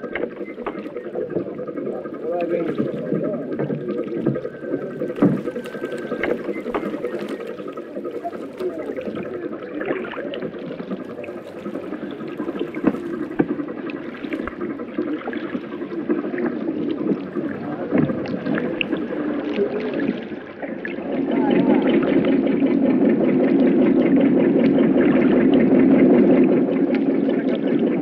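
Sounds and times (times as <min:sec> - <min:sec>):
sloshing water: 0:00.0 - 0:28.0
wooden knocks: 0:02.5 - 0:07.6, 0:11.0 - 0:14.7.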